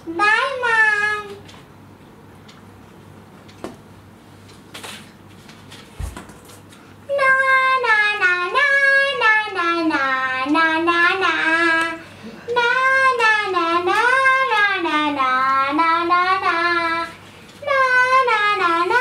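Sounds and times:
child singing: 0.1s - 1.4s, 7.1s - 19.0s.

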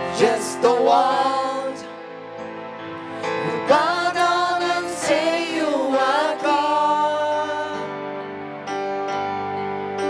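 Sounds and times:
person singing: 0.0s - 1.9s, 3.2s - 8.0s.

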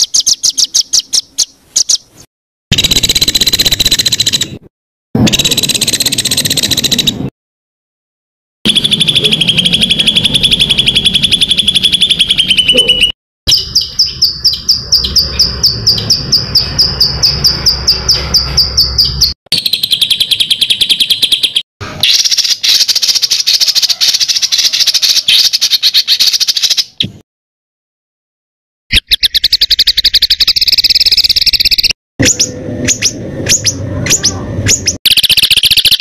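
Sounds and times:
songbird calling in sharp notes: 0.0s - 2.2s, 8.7s - 27.1s, 28.9s - 36.0s.

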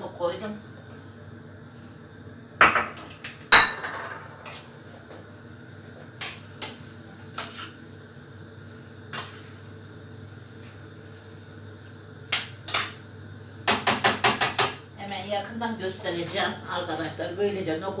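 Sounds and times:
spoon knocking on steel pot: 13.7s - 14.8s.

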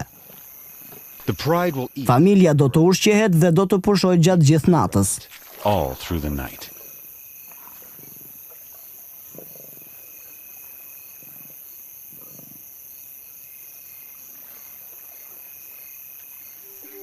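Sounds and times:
night insects chorus: 0.0s - 17.0s
lions growling: 9.2s - 10.3s, 11.2s - 12.7s.

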